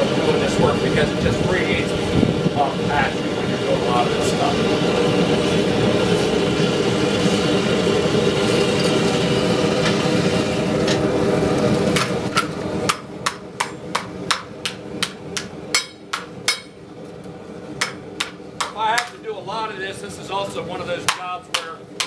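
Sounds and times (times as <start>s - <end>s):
gas forge burner roaring: 0.0s - 22.0s
hammer striking hot steel: 11.9s - 16.8s, 17.8s - 19.2s, 21.0s - 22.0s.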